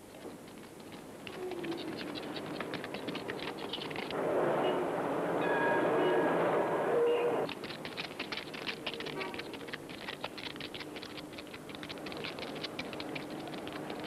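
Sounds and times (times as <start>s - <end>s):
crackling surface noise clicks: 0.0s - 4.2s, 7.4s - 14.0s.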